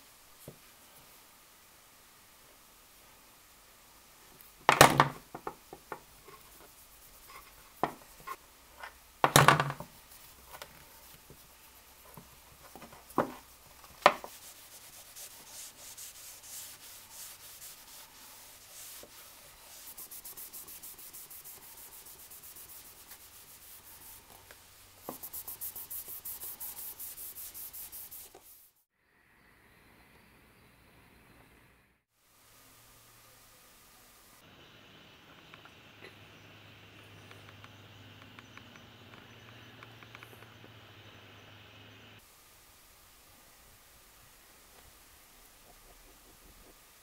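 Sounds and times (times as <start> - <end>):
tools knocking on workbench: 9.2 - 9.9
cloth rubbing metal shaft: 13.4 - 24.4.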